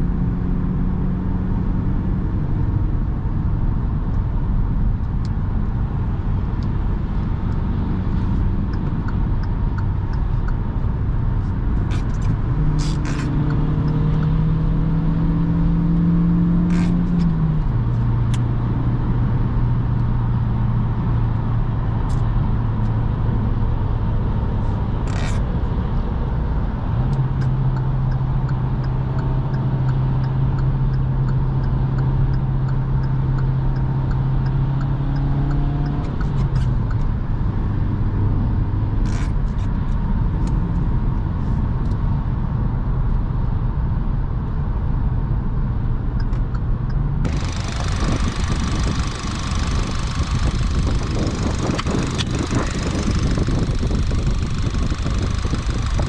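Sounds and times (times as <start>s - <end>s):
car engine: 0.0s - 56.0s
sharp clicks: 46.2s - 56.0s.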